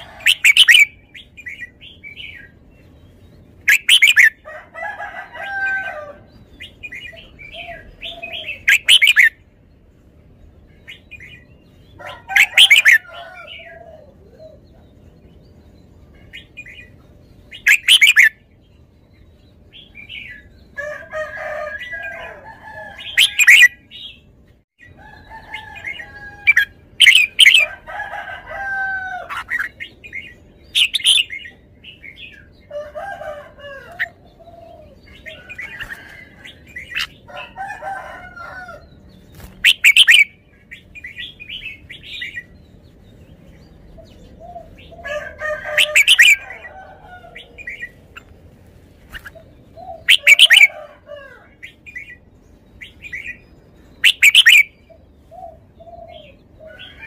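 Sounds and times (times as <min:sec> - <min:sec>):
bird chattering warbles: 0:00.0 - 0:02.5, 0:03.6 - 0:04.4, 0:06.6 - 0:09.4, 0:12.0 - 0:14.6, 0:16.2 - 0:18.4, 0:23.0 - 0:24.2, 0:25.8 - 0:27.7, 0:29.3 - 0:32.4, 0:39.4 - 0:42.6, 0:44.2 - 0:48.3, 0:49.1 - 0:50.7, 0:54.0 - 0:54.8
bird singing bright phrases: 0:00.0 - 0:48.3, 0:51.5 - 0:57.0.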